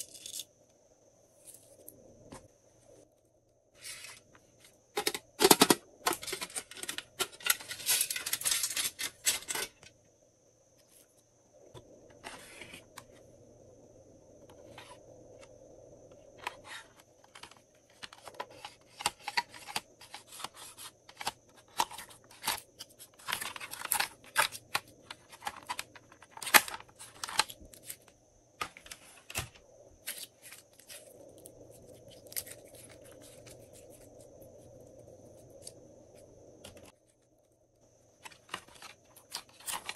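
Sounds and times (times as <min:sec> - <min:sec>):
scratchy rustling of toy cases: 0:16.4 - 0:34.4, 0:38.1 - 0:39.9.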